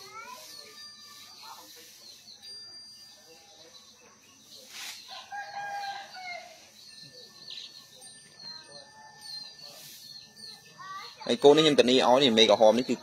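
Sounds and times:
small birds chirping: 0.0s - 13.0s
rooster crowing: 5.1s - 6.6s.

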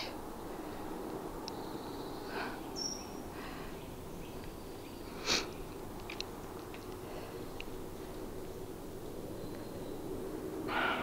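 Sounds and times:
faint clicks: 5.7s - 7.0s
brief breathy noise: 10.7s - 11.0s.

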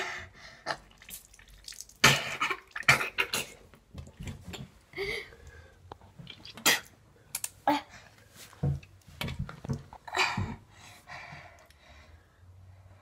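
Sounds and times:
boy blowing and spluttering: 0.6s - 5.2s, 6.2s - 7.0s.

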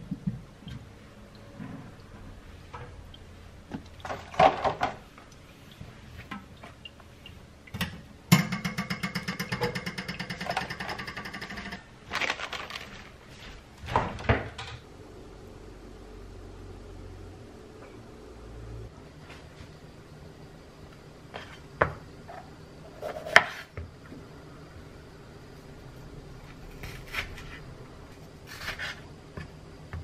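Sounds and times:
knocks and clatters in a sink: 3.7s - 5.0s, 7.8s - 11.8s.

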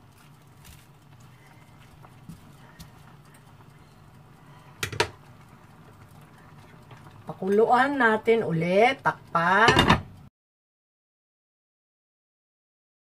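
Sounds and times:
spatula knocking on pan: 9.6s - 10.1s.

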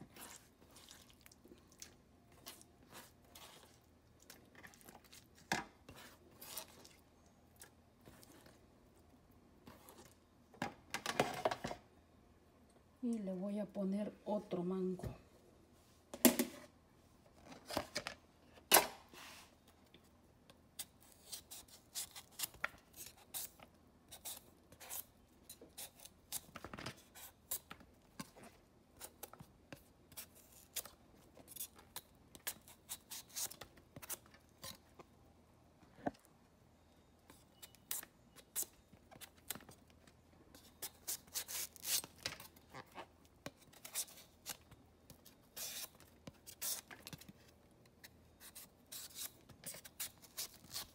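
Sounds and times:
knife scraping and slicing mango: 20.8s - 34.9s, 40.5s - 44.6s, 48.4s - 50.9s.

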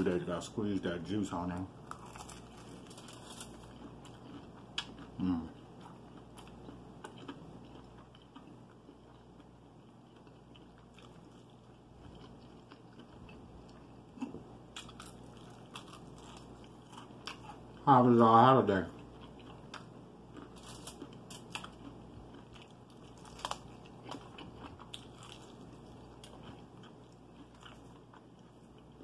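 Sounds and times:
crisp crackles: 1.9s - 3.8s, 22.9s - 26.5s
chewing: 1.9s - 17.8s, 18.9s - 29.0s.

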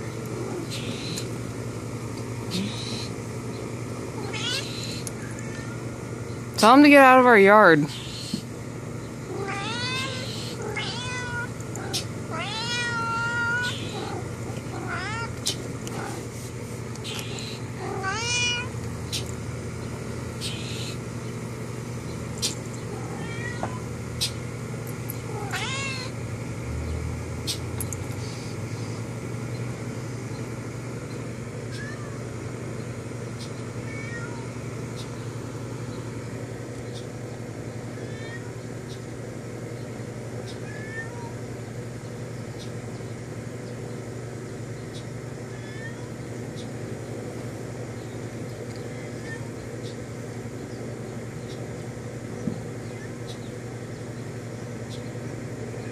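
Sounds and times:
steady low hum: 0.0s - 55.9s
cat meowing: 4.2s - 5.8s, 9.3s - 15.4s, 17.0s - 18.8s, 23.0s - 23.8s, 25.3s - 26.2s, 31.7s - 32.2s, 33.8s - 34.5s, 38.0s - 38.5s, 40.6s - 41.4s, 45.5s - 46.1s, 48.9s - 49.5s.

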